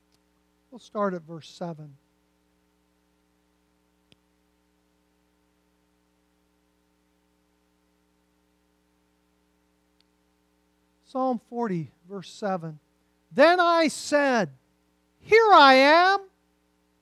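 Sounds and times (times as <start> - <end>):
low electrical hum: 0.0 - 17.0
faint click: 4.1 - 4.3, 9.9 - 10.2.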